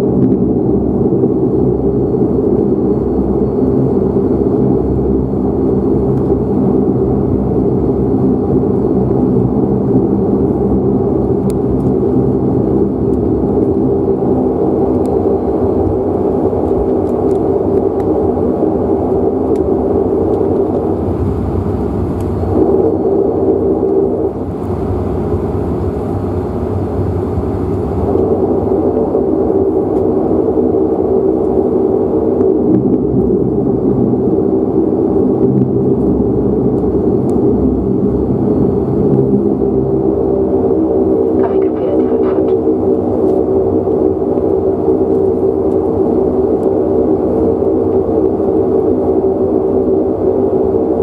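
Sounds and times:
turboprop engine droning: 0.0s - 51.0s.

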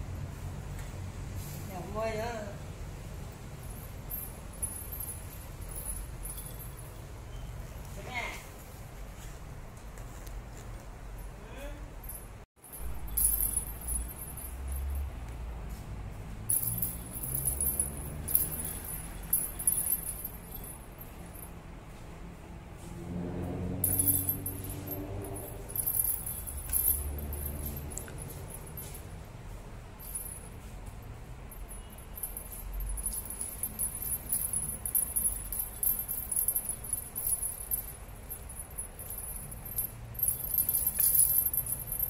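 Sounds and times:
jingle bell on cat toy: 3.2s - 8.4s, 11.1s - 15.4s, 16.4s - 21.6s, 23.6s - 42.0s.

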